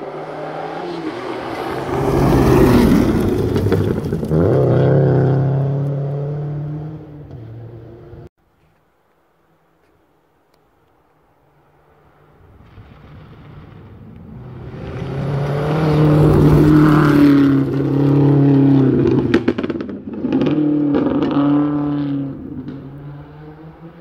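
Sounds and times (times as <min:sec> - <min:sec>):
rally car engine at full throttle: 0:13.7 - 0:24.0.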